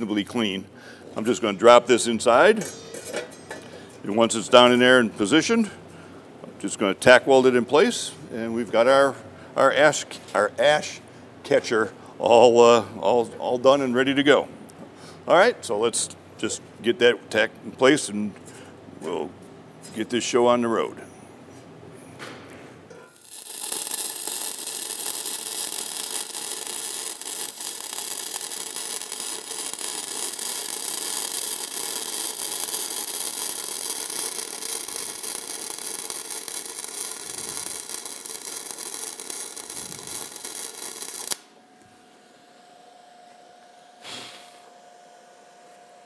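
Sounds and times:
welding arc crackling: 23.1s - 41.6s.

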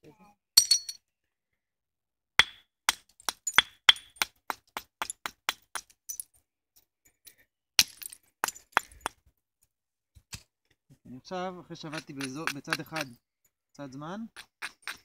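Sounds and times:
antler clicking against flint: 11.9s - 13.1s.

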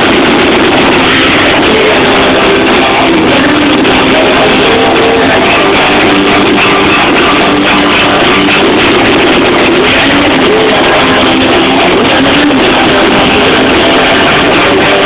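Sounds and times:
drums: 0.0s - 15.0s
electric guitars: 0.0s - 15.0s.

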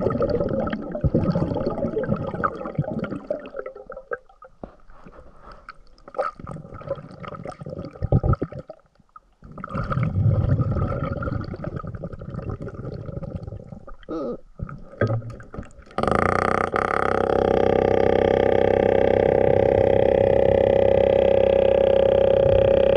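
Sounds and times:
water sloshing underwater: 0.0s - 22.9s
loud steady hum: 16.0s - 22.9s.

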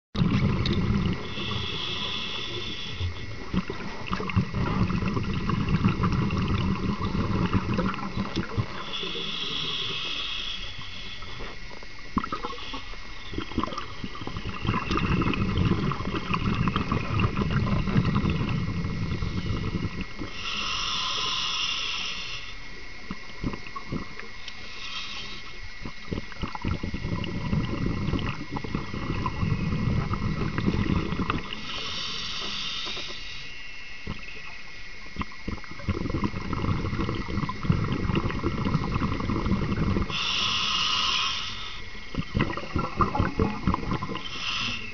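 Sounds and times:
regulator hissing inhalations: 1.2s - 3.3s, 8.5s - 11.8s, 12.4s - 13.4s, 19.1s - 22.8s, 24.5s - 25.7s, 31.5s - 34.4s, 40.0s - 42.1s, 44.2s - 44.9s
bubbling exhalation: 3.0s - 9.9s, 13.3s - 21.0s, 25.8s - 31.7s, 35.2s - 41.2s, 42.1s - 44.9s.

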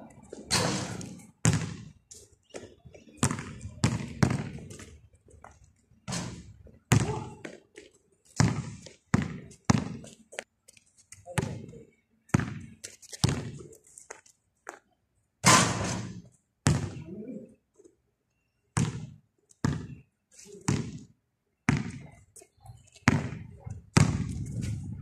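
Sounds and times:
basketball bouncing on concrete: 0.3s - 2.0s, 2.6s - 5.0s, 6.1s - 7.6s, 8.4s - 10.1s, 11.4s - 13.6s, 15.7s - 17.0s, 18.8s - 20.0s, 20.7s - 21.1s, 21.7s - 22.1s, 23.1s - 24.5s.

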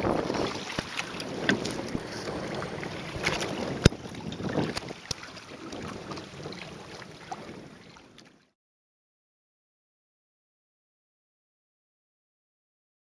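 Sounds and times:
wind buffeting microphone: 0.0s - 8.3s
water rushing along hull: 0.0s - 8.6s.

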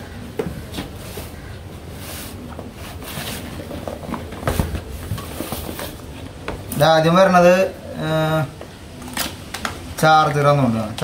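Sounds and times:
cardboard scraping and rustling: 0.7s - 6.2s.

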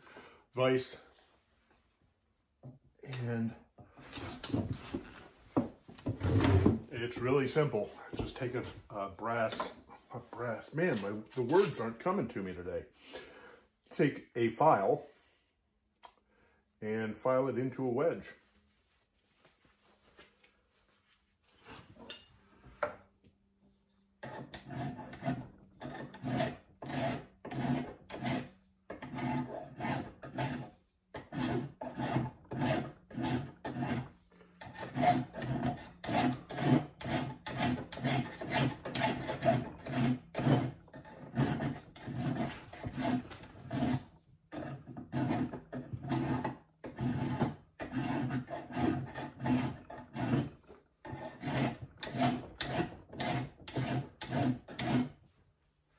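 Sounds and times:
hand file rasping on brass: 24.2s - 55.2s.

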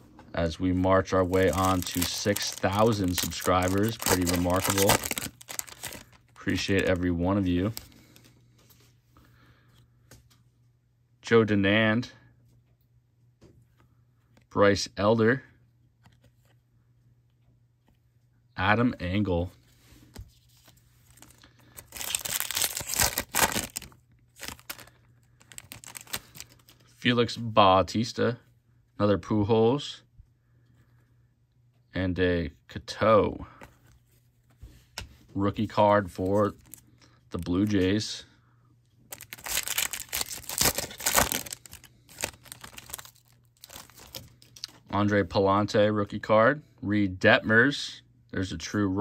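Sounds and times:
foil wrapper crinkling and tearing: 1.0s - 8.2s, 20.6s - 26.9s, 39.1s - 44.7s.

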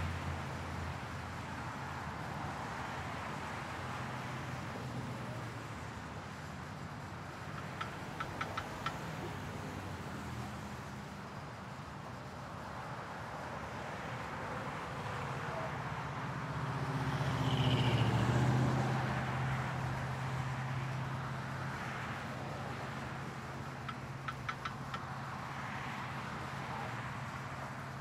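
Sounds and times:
street traffic: 0.0s - 28.0s
car passing: 13.5s - 28.0s.

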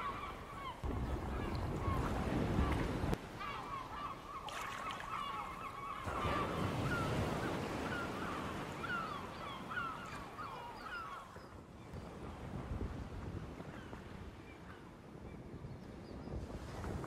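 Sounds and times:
seabirds calling: 0.0s - 12.0s
wind and surf: 0.0s - 17.0s.

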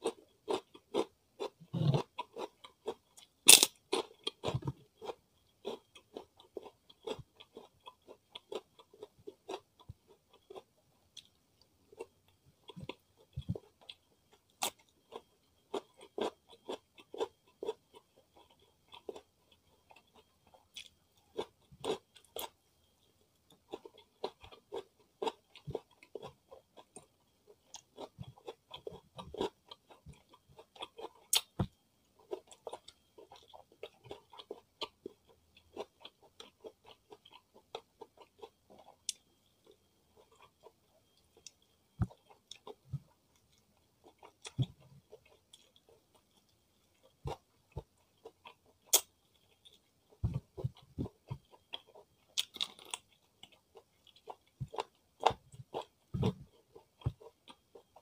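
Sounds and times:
wet mouth chewing clicks: 48.4s - 49.1s.

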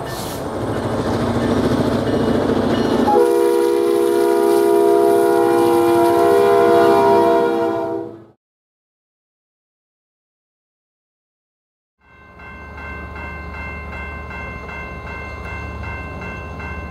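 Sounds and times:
train rumbling: 0.0s - 8.4s, 12.2s - 16.9s
locomotive air horn blast: 3.0s - 8.4s.

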